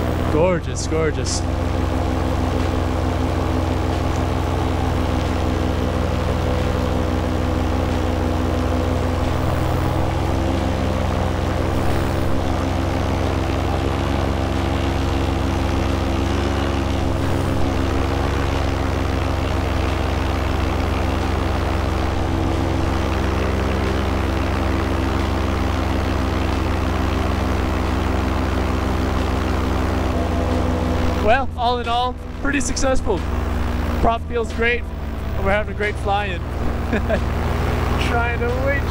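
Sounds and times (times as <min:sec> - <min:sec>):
paramotor engine drone: 0:00.0 - 0:38.9.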